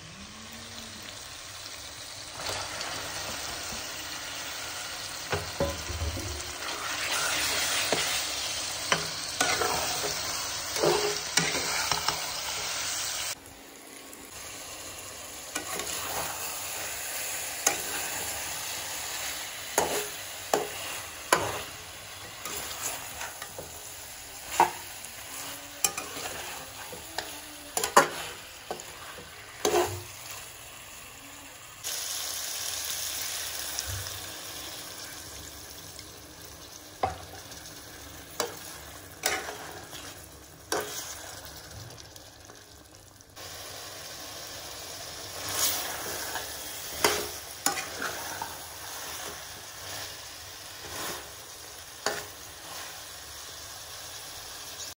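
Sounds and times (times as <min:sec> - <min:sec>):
chicken sizzling in a pan: 0:00.0 - 0:54.9
metal spatula scraping a pan: 0:05.3 - 0:12.8, 0:15.6 - 0:30.4, 0:38.4 - 0:41.4, 0:45.3 - 0:51.4.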